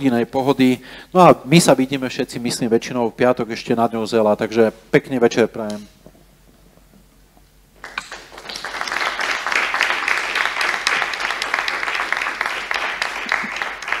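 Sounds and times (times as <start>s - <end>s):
small group applauding: 7.8s - 14.0s.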